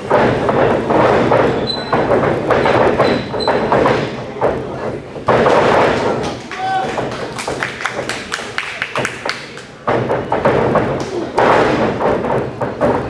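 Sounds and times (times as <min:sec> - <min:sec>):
crowd voices and shouting: 0:03.1 - 0:13.0.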